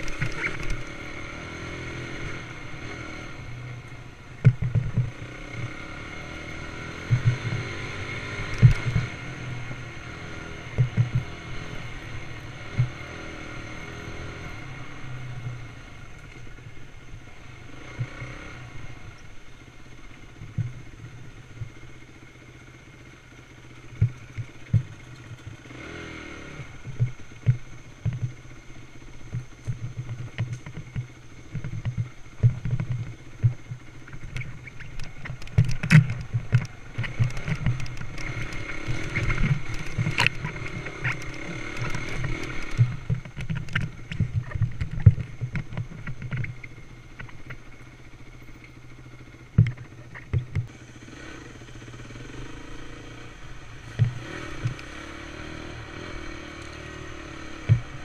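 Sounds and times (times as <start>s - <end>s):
dirt bike engine running: 0.0s - 58.0s
bike knocking and clattering: 29.2s - 47.7s.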